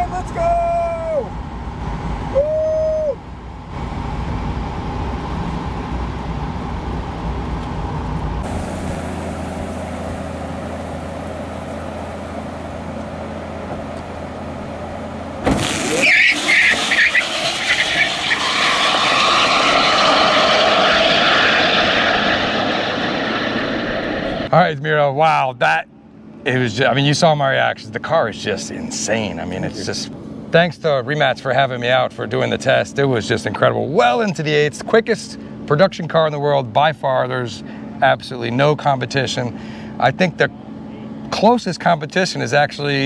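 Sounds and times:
car road and tyre noise: 0.1 - 24.5.

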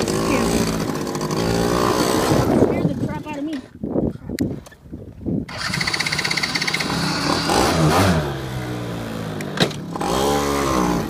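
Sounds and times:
quad engine revving: 0.0 - 3.3, 5.5 - 11.0.

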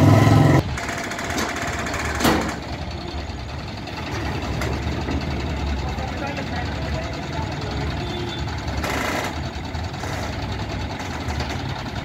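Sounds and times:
loud low hum: 0.0 - 0.8
diesel engine running: 0.0 - 12.0.

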